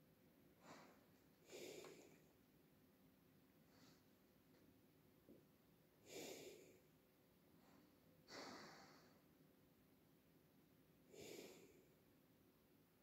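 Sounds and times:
dog breathing slowly: 0:00.6 - 0:02.3.

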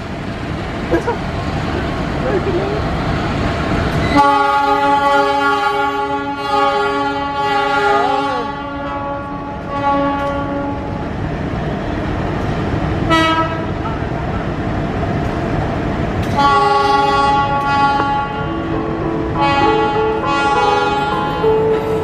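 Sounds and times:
train horn blast: 0:04.0 - 0:11.0, 0:13.1 - 0:13.8, 0:16.3 - 0:22.0.

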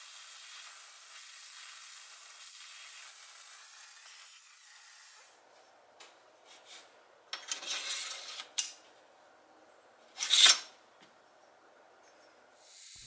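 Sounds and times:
loud brief metal scrape: 0:10.2 - 0:10.7.

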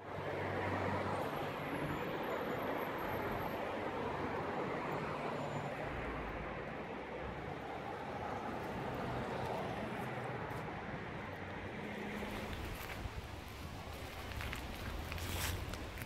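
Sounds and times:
city street traffic: 0:00.0 - 0:16.0.

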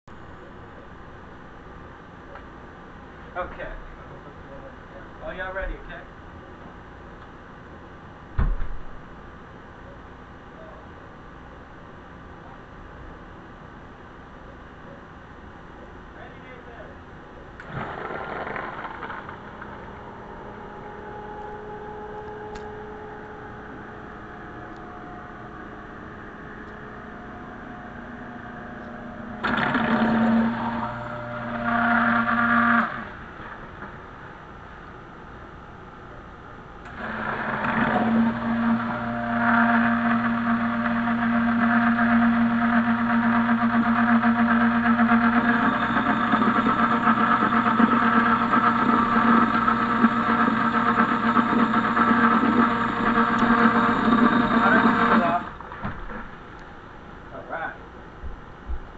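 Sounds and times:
quiet steady hum: 0:00.1 - 0:58.9
submersible pump running: 0:10.0 - 0:34.5, 0:36.8 - 0:56.8.

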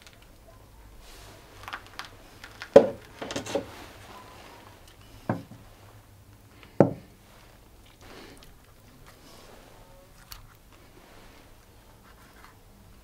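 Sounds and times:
objects knocking and clattering: 0:02.7 - 0:03.7, 0:05.2 - 0:05.6, 0:06.8 - 0:07.1.

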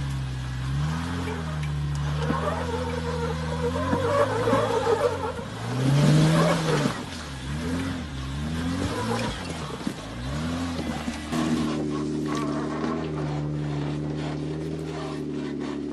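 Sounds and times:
engine revving under load: 0:00.0 - 0:15.9
tires knocking on rock: 0:00.0 - 0:15.9.

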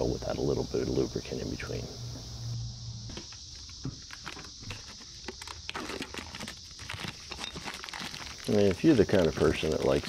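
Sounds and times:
cicadas droning: 0:00.0 - 0:10.0
plastic pack crackling: 0:04.1 - 0:10.0.

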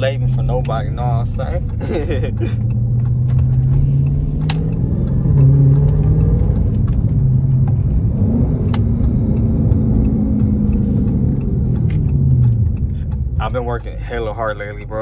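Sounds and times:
car engine drone: 0:00.0 - 0:15.0
road noise: 0:00.0 - 0:15.0.

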